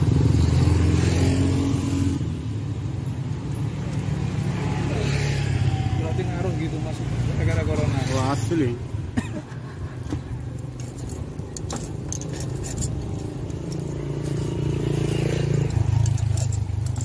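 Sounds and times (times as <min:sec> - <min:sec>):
metal lid clicks and scrapes: 0:10.8 - 0:13.9.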